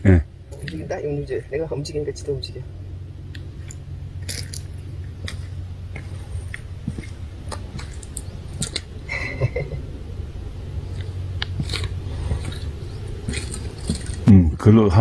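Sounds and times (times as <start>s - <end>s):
wind rumbling on microphone: 0.0s - 15.0s
small clicks and rustles: 3.3s - 9.0s, 10.8s - 14.3s.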